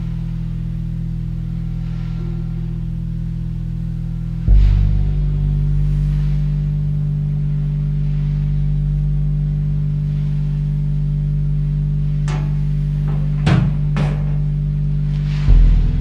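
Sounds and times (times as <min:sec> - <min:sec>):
low drone of held tones: 0:00.0 - 0:16.0
heavy low boom: 0:04.3 - 0:09.4, 0:12.6 - 0:16.0.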